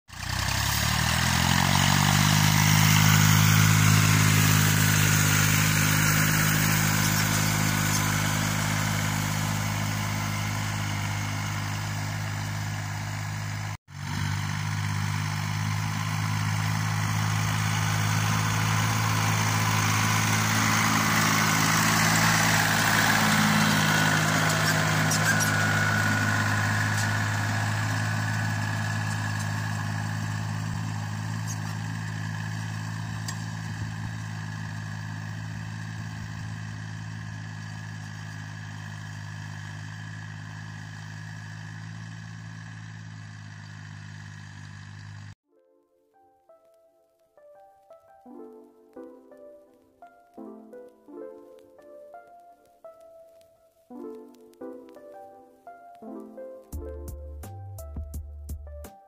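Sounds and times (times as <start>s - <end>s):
tractor diesel engine under load: 0.1s - 45.4s.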